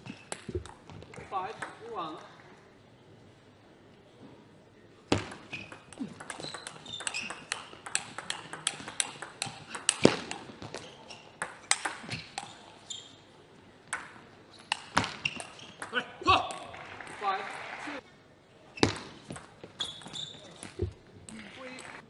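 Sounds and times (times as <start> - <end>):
table tennis ball clicking: 5.3 - 10.4.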